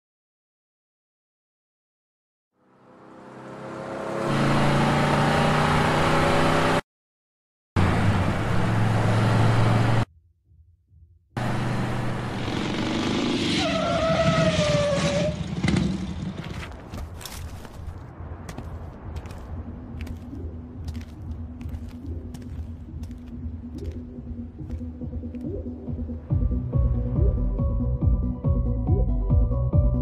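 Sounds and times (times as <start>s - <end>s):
tyre squeal: 13.4s - 15.6s
motorcycle engine running hard: 15.1s - 16.6s.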